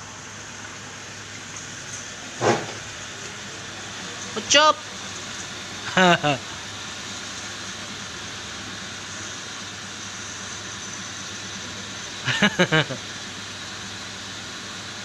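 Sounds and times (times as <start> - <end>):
air conditioner hissing: 0.0 - 15.0
man laughing: 5.9 - 6.6, 12.2 - 13.1.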